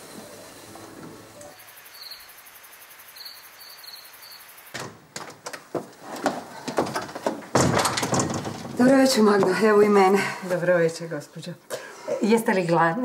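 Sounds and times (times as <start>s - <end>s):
faint high chirps: 1.5s - 4.7s
door: 4.7s - 9.0s
footsteps: 4.8s - 10.6s.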